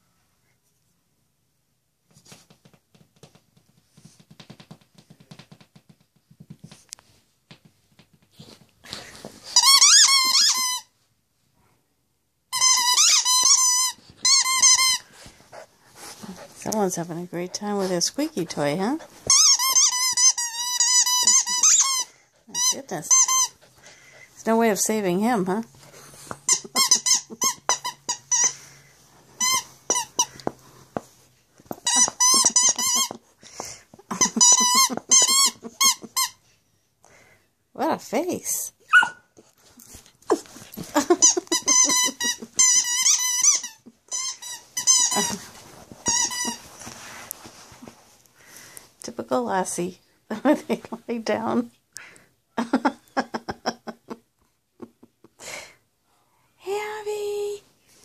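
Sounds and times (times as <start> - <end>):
squeaky toy squeaking: 9.6 - 10.9, 12.5 - 15.0, 19.2 - 23.6, 26.5 - 28.6, 29.4 - 30.4, 31.8 - 33.2, 34.1 - 36.4, 38.9 - 39.2, 40.3 - 46.7.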